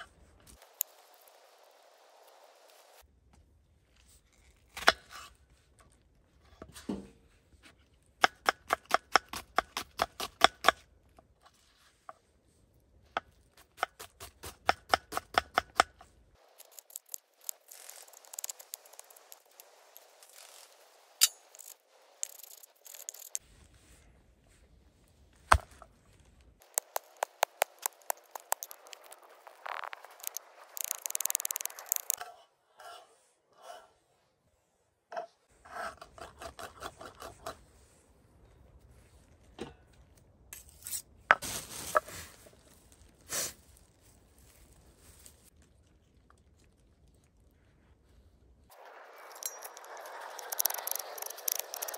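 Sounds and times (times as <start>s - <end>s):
knife scraping board: 35.2s - 37.6s.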